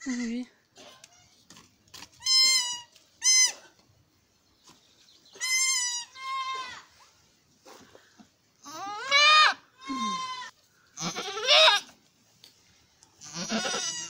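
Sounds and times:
goat bleating: 5.4 - 6.9, 8.6 - 11.9, 13.2 - 14.0.

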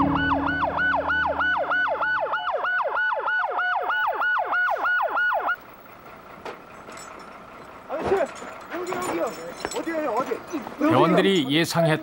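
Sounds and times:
siren in a fast yelp: 0.0 - 5.6.

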